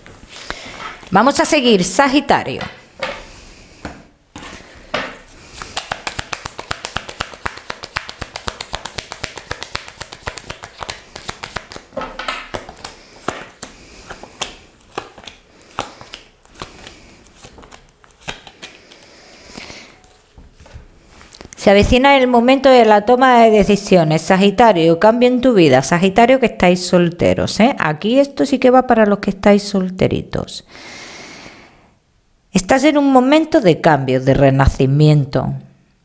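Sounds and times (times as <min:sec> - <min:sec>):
cards being shuffled: 0:05.4 - 0:21.6.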